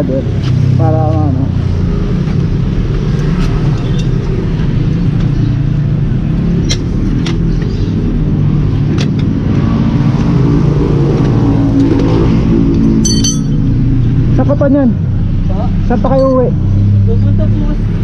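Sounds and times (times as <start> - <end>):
engine humming: 0.0 - 18.0
metal tire levers clinking: 12.9 - 13.7.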